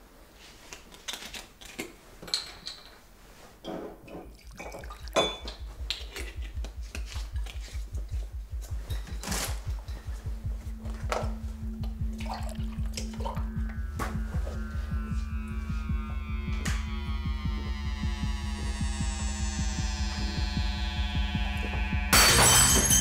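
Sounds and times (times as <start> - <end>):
crockery clinking and knocking: 4.1 - 6.4, 22.2 - 23.0
fast low pulsing music beat: 4.8 - 22.2.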